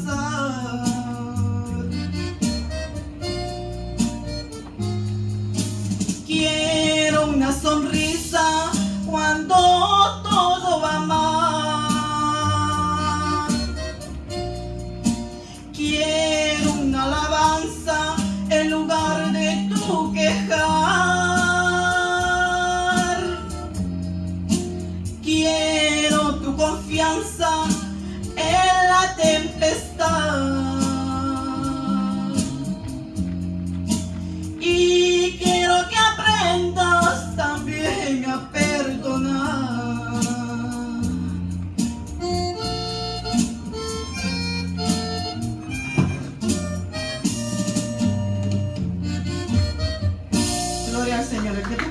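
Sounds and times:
woman singing into a microphone: 0:00.0 - 0:02.2, 0:06.2 - 0:13.9, 0:15.6 - 0:23.8, 0:25.1 - 0:33.2, 0:34.6 - 0:41.6
worship song backing track: 0:00.0 - 0:51.9.

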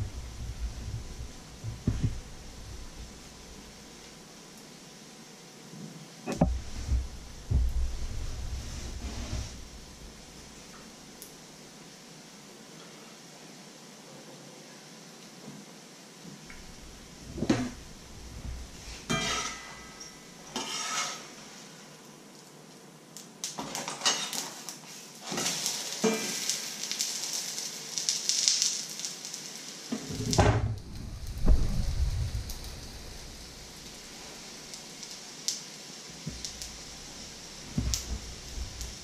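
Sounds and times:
pancake sizzling in a pan: 0:00.0 - 0:05.7, 0:06.3 - 0:14.0, 0:14.6 - 0:39.0
dull knocks: 0:00.6 - 0:02.4, 0:06.4 - 0:08.1
metal spatula scraping a pan: 0:18.8 - 0:21.7.

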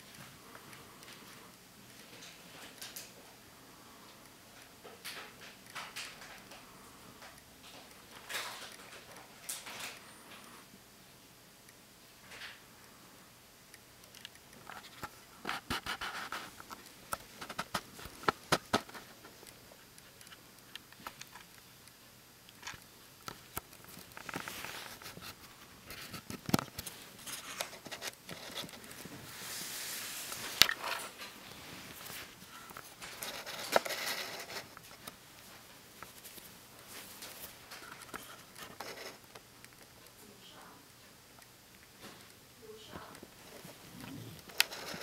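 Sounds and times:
paper rustling: 0:23.8 - 0:39.2.

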